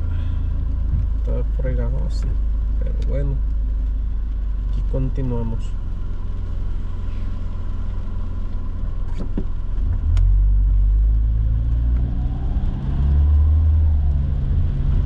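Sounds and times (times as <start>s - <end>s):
car engine and tyres rumbling: 0.0s - 15.0s.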